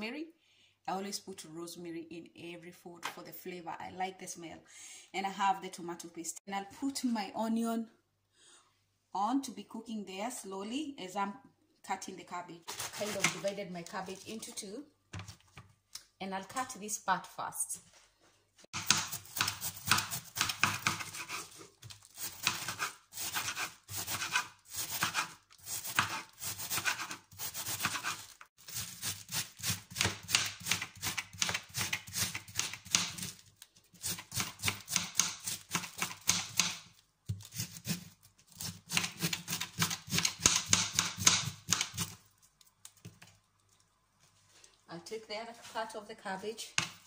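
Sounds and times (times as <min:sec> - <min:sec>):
knife slicing cabbage on board: 0:12.6 - 0:13.5, 0:18.8 - 0:33.4, 0:34.0 - 0:42.2.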